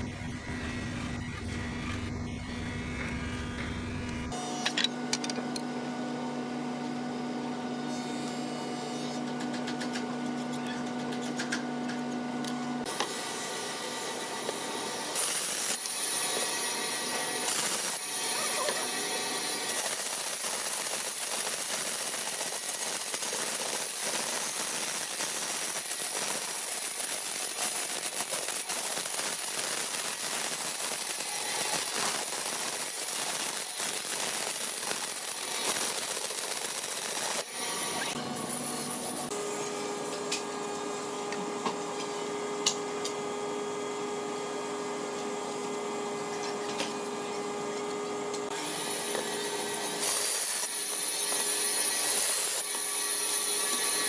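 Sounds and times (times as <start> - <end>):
machine hum with fixed tones: 0.0 - 54.0
bandsaw cutting wood: 12.9 - 40.3, 48.5 - 54.0.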